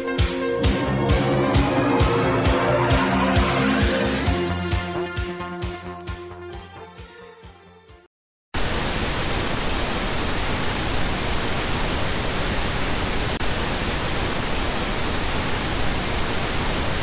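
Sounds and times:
loud static hiss: 0:08.6 - 0:17.0.

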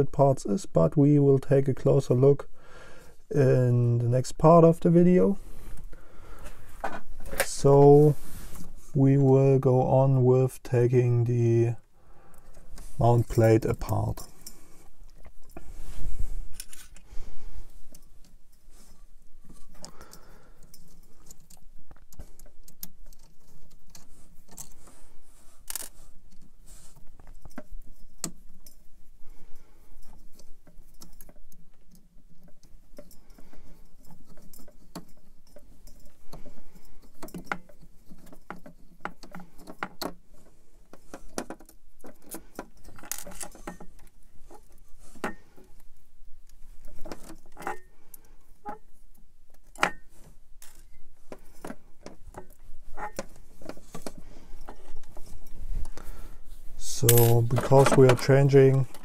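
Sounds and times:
metal parts clicking and clinking: 0:30.0 - 0:59.0.

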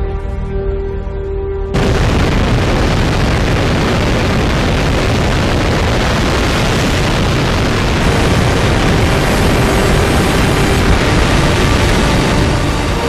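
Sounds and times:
rocket engine exhaust roar: 0:01.7 - 0:13.0.

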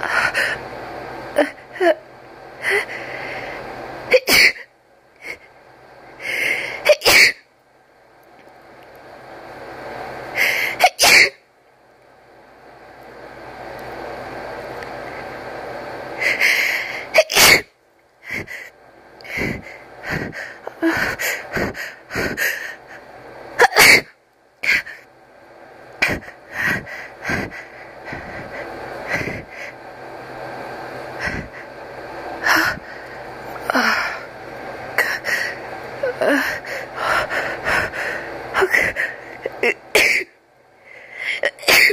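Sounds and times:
person sneezing: 0:10.7 - 0:11.4, 0:17.1 - 0:17.6, 0:23.6 - 0:24.1, 0:41.4 - 0:41.9.

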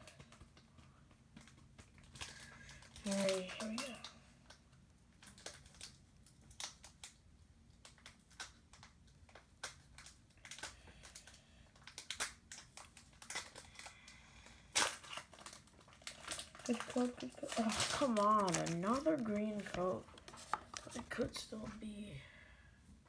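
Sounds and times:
foil wrapper crinkling: 0:01.3 - 0:21.8
cards being handled: 0:14.8 - 0:21.9.

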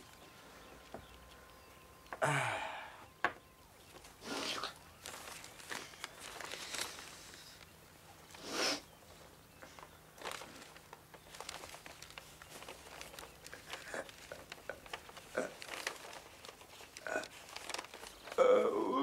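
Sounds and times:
paper rustling and crinkling: 0:03.8 - 0:08.4, 0:09.0 - 0:18.6.

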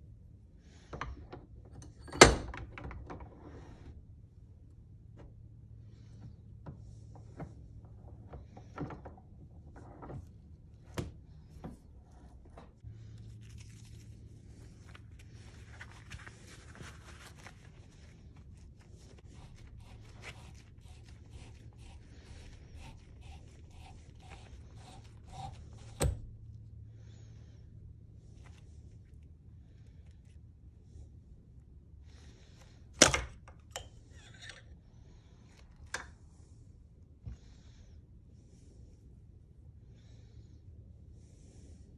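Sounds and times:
steady low hum: 0:03.0 - 0:41.9
gloves rustling and crackling: 0:11.4 - 0:25.8.

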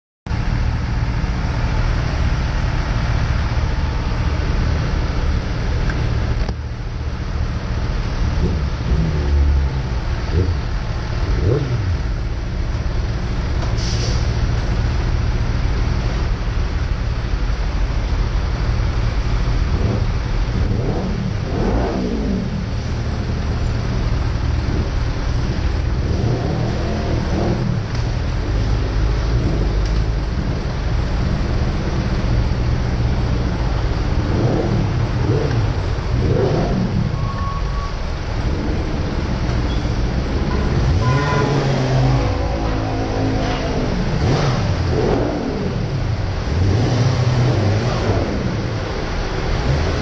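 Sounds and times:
engines rumbling: 0:00.3 - 0:50.0
motorcycle engines revving: 0:00.8 - 0:50.0
short hiss: 0:13.8 - 0:14.4.

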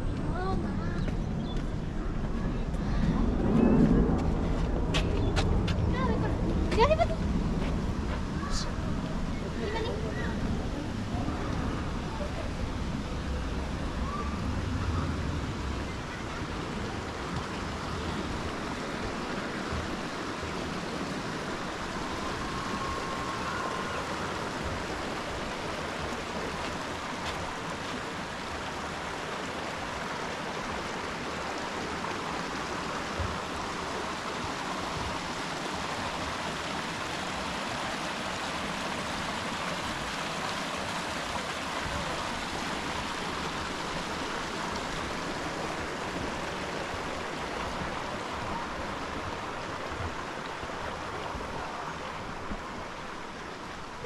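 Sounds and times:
creek water flowing: 0:00.0 - 0:54.0.

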